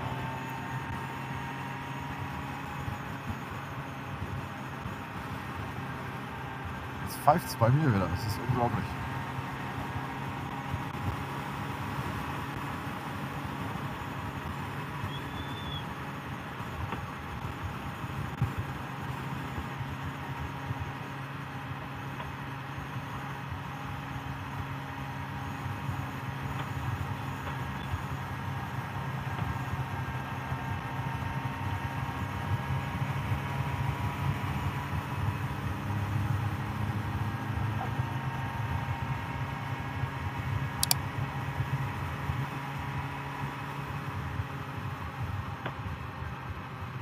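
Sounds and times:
motorcycle engine running: 0:00.0 - 0:07.4, 0:08.5 - 0:47.0
sharp click: 0:40.8 - 0:41.0.

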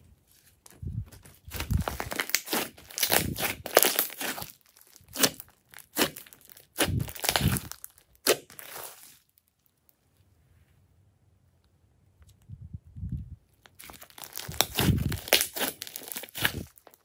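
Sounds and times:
slime squelching and crackling: 0:00.6 - 0:09.9, 0:13.5 - 0:17.0.

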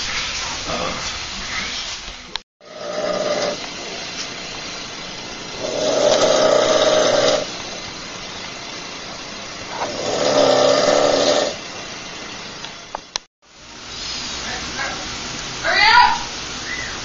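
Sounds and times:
steady hiss: 0:00.0 - 0:17.0
person snoring: 0:02.6 - 0:03.6, 0:05.6 - 0:07.5, 0:09.7 - 0:11.6.

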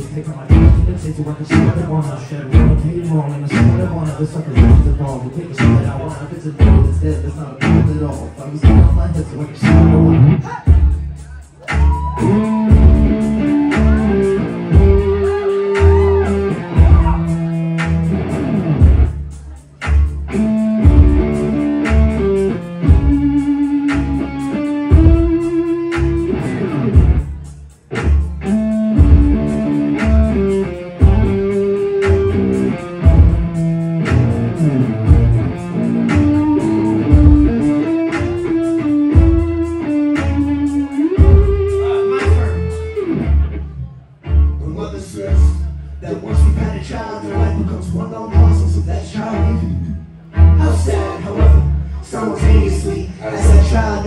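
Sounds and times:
steady drum beat: 0:00.0 - 0:43.0
bass guitar: 0:00.0 - 0:54.0
electric guitar: 0:11.7 - 0:19.1, 0:19.8 - 0:44.0.

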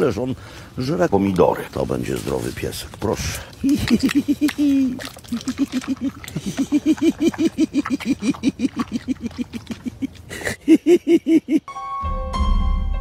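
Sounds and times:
person laughing: 0:03.6 - 0:11.7
piano music: 0:11.6 - 0:13.0.

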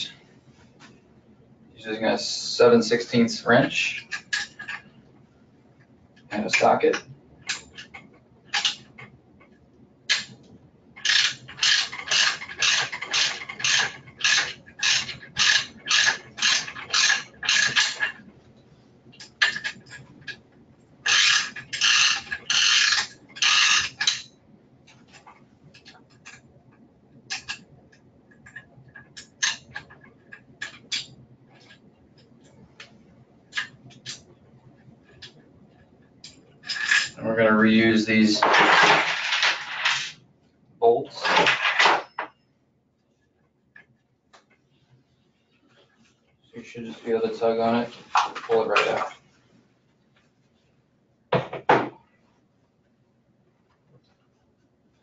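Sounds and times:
ratchet clicking: 0:11.0 - 0:18.1, 0:21.0 - 0:24.3.

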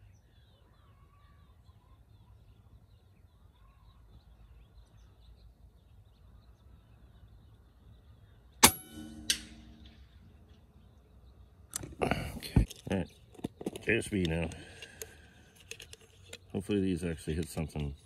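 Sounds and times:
faint bird chirps: 0:00.0 - 0:08.6
air rifle shot: 0:08.6 - 0:09.9.

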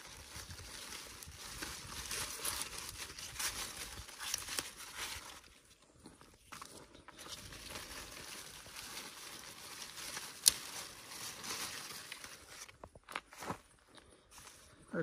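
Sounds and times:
rustling vines and leaves: 0:00.0 - 0:15.0
stem snapping: 0:10.2 - 0:11.0.

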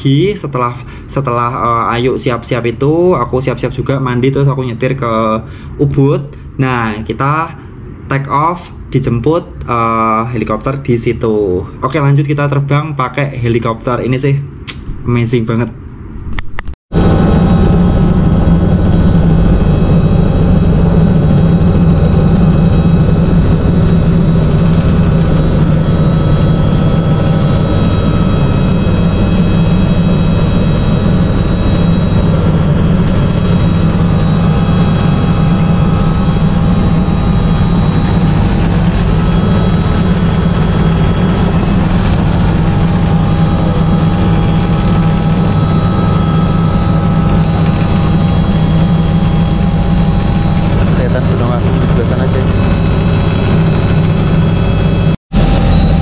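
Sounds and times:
helicopter rotor and turbine: 0:16.9 - 0:56.0.

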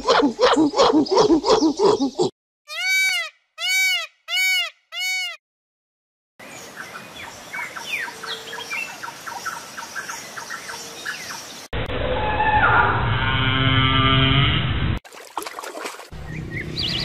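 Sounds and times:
peacock calls: 0:00.1 - 0:05.4.

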